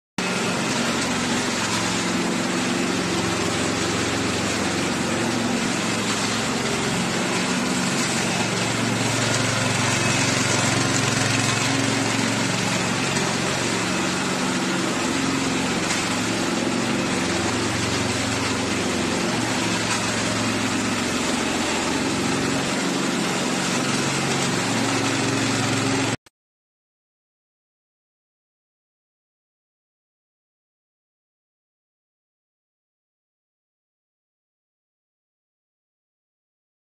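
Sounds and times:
small gasoline engine running: 0:00.2 - 0:26.2.

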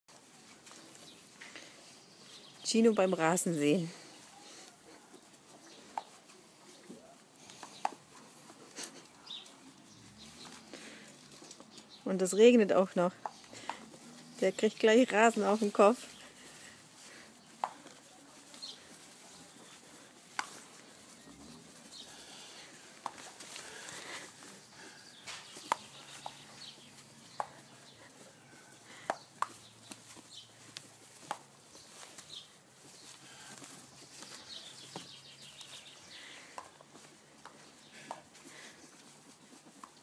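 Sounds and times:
light pattering on soil: 0:00.1 - 0:40.0.

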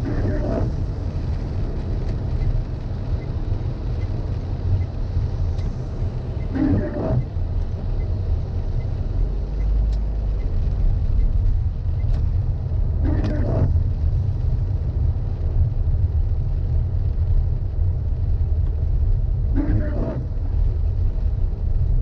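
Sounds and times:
windshield wiper rubbing: 0:00.0 - 0:00.8, 0:06.5 - 0:07.4, 0:13.0 - 0:13.9, 0:19.6 - 0:20.4
car cabin road rumble: 0:00.0 - 0:22.0.

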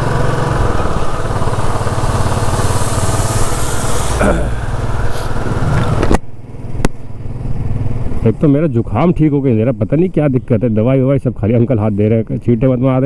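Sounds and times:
motorcycle engine running: 0:00.0 - 0:08.4
wind and wet road hiss: 0:00.6 - 0:06.2.

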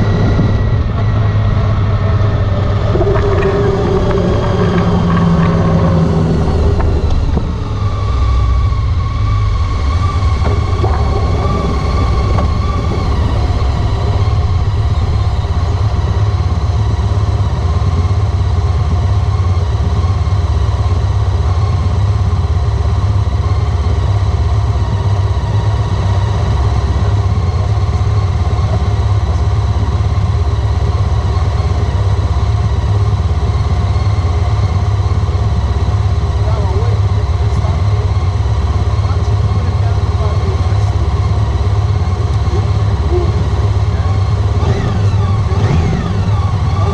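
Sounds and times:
motorcycle engine running: 0:00.0 - 0:46.9.

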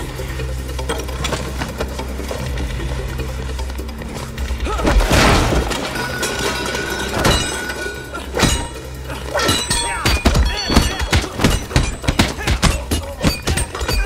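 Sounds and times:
background music with held tones: 0:00.0 - 0:14.0
loud crash: 0:04.8 - 0:07.8
punch and kick hits: 0:10.1 - 0:14.0.

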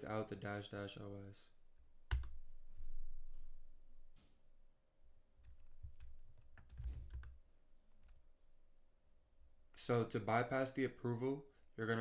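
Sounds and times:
keyboard keys clicking: 0:02.1 - 0:02.4, 0:05.4 - 0:07.4.

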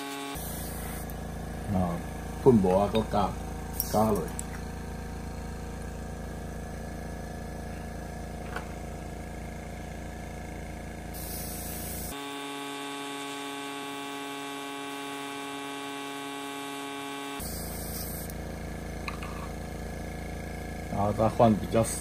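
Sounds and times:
airbrush spray hiss: 0:00.0 - 0:01.2, 0:11.1 - 0:12.2, 0:17.4 - 0:18.4
machine hum: 0:00.0 - 0:22.0.

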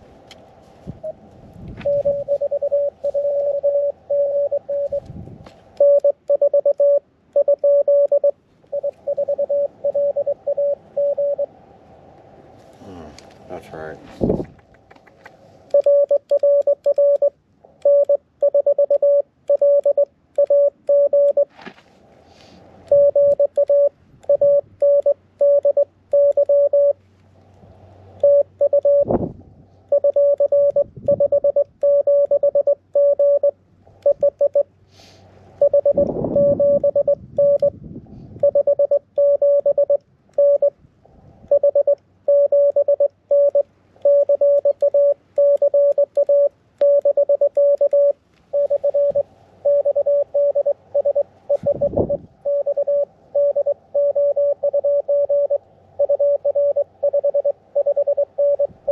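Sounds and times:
morse code tone: 0:01.8 - 0:05.1, 0:05.8 - 0:11.5, 0:15.7 - 0:21.5, 0:22.9 - 0:27.0, 0:28.2 - 0:29.1, 0:29.9 - 0:34.7, 0:35.6 - 0:37.8, 0:38.4 - 0:40.7, 0:41.5 - 0:58.9
brief rustling: 0:21.5 - 0:22.6.

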